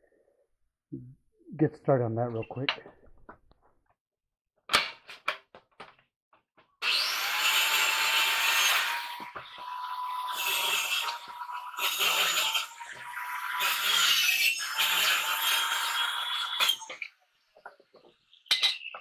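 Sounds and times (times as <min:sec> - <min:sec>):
electric saw cutting wood: 0:06.8 - 0:16.9.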